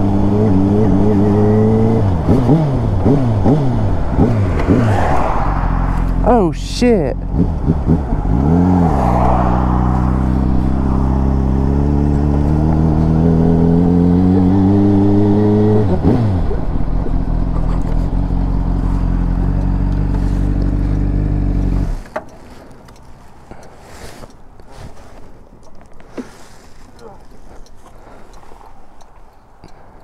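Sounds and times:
motorcycle engine revving: 0.0s - 6.4s, 7.2s - 22.2s.

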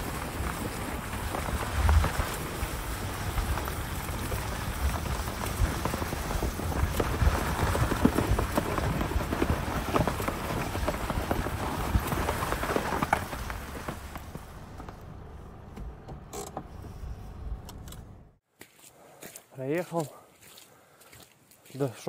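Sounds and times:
snow chains crunching through snow: 0.0s - 14.6s.

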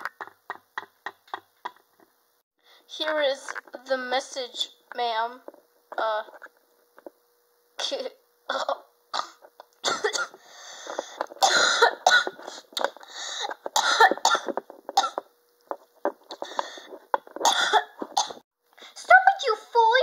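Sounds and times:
child coughing: 7.8s - 10.4s, 11.4s - 12.5s, 13.8s - 15.2s, 17.4s - 18.4s.

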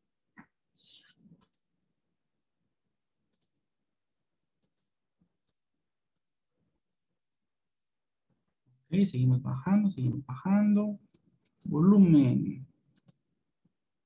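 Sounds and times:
faint computer mouse clicks: 1.4s - 1.7s, 3.3s - 3.6s, 4.6s - 6.4s, 12.9s - 13.3s.

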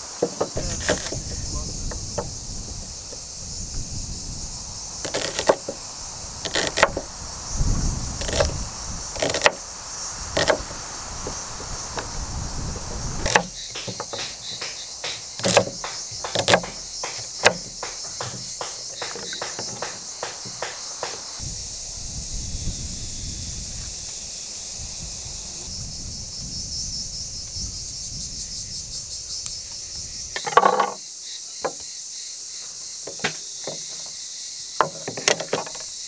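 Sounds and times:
crickets chirring: 0.0s - 36.0s
knife chopping on wooden board: 0.2s - 1.2s, 5.1s - 5.8s, 6.5s - 7.0s, 9.2s - 9.6s, 10.4s - 11.4s, 13.2s - 21.3s.

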